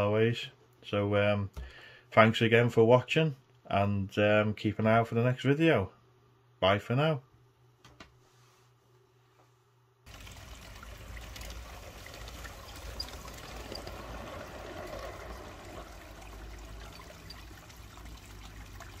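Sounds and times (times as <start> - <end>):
rushing trickling water: 10.1 - 19.0
low rumble: 12.2 - 18.0.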